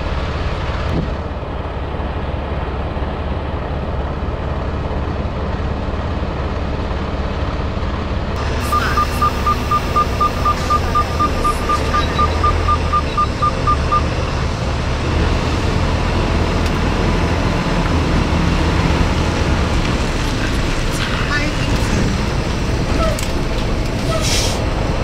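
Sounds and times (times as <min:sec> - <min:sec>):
diesel truck engine running: 0:00.0 - 0:25.0
rapid high reversing beeps: 0:08.6 - 0:14.1.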